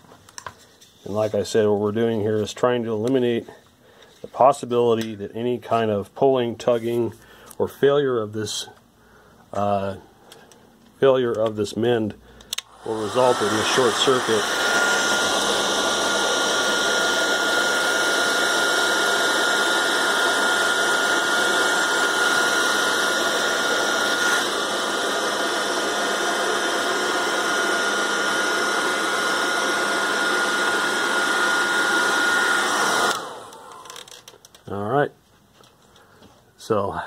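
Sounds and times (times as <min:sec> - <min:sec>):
heat gun blower with fan whine: 0:11.2 - 0:34.3.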